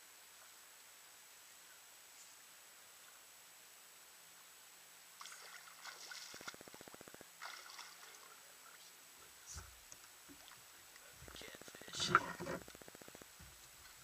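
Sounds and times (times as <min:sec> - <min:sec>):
faint water splashing: 0:05.1 - 0:14.0.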